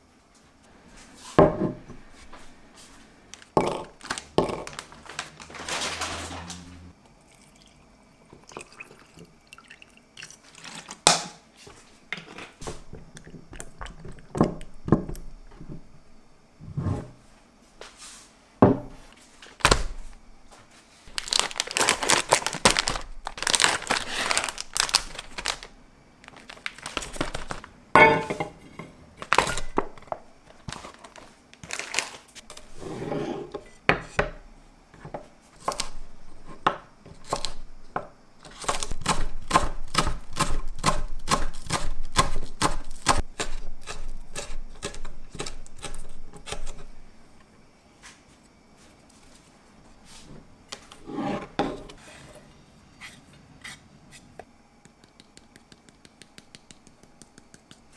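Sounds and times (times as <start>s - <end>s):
metal bowl clinking down: 28.0s - 28.6s.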